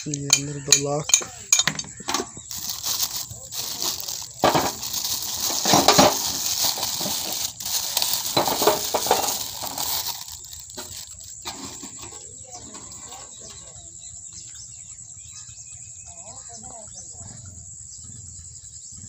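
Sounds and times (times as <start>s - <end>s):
plastic bag crinkling: 2.5s - 12.1s.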